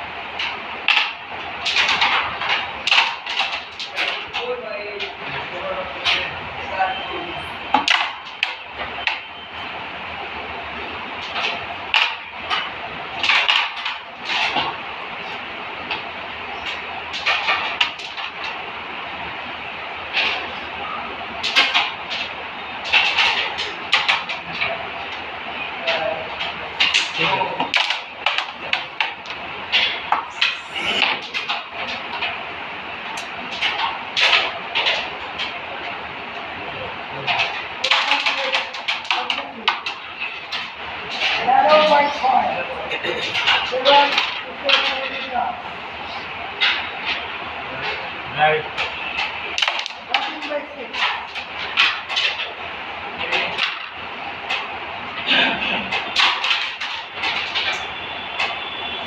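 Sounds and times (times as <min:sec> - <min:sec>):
carrom pieces clacking: 0:00.4 - 0:04.3, 0:11.3 - 0:14.8, 0:48.7 - 0:52.6, 0:55.8 - 0:59.0.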